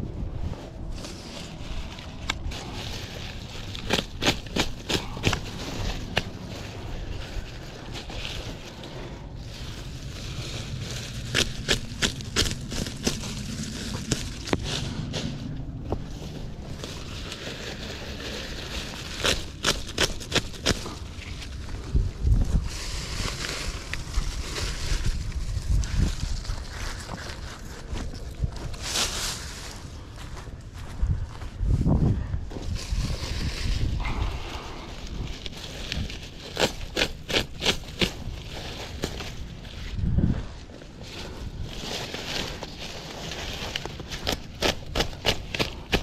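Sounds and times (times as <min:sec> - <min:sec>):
low rumble: 0:00.0 - 0:36.9
dry leaves rustling: 0:00.0 - 0:46.0
knife cutting dry leaves: 0:00.9 - 0:09.1, 0:09.8 - 0:15.4, 0:16.5 - 0:21.5, 0:35.4 - 0:39.4, 0:41.8 - 0:46.0.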